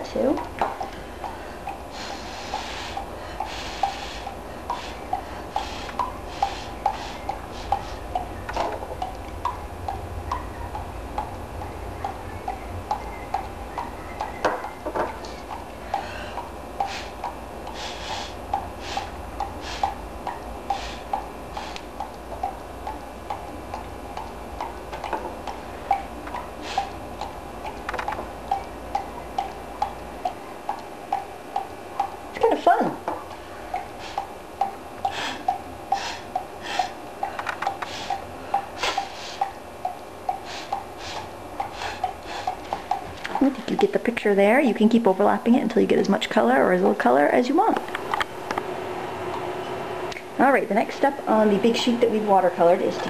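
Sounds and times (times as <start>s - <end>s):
steady ticking: 0.0s - 45.6s
hissing puffs of air: 1.9s - 8.1s, 16.8s - 20.0s, 20.6s - 22.0s, 35.1s - 37.0s, 37.6s - 39.5s, 40.4s - 42.7s.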